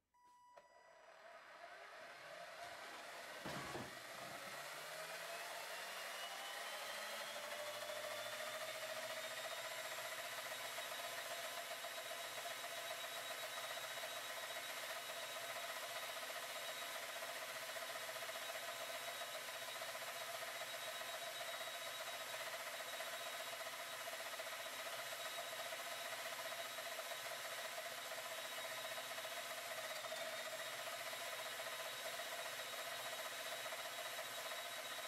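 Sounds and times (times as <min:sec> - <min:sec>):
spinning disc motor whirring: 0:01.0 - 0:35.0.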